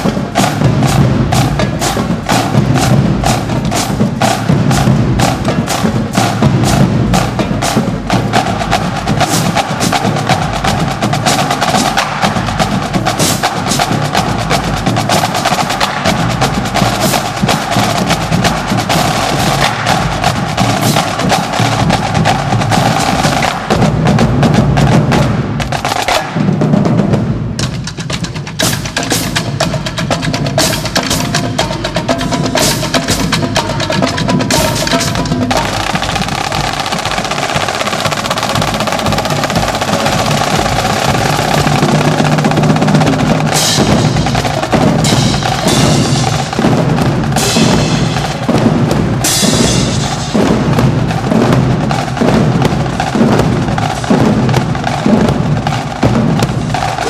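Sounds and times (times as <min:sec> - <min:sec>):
marching drumline playing: 0:00.0 - 0:57.0
cymbals crashing: 0:28.6 - 0:57.0.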